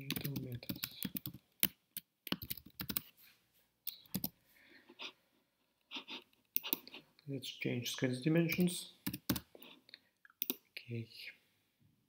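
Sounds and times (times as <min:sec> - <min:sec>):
keyboard typing clicks: 0:00.0 - 0:03.0, 0:03.9 - 0:04.3.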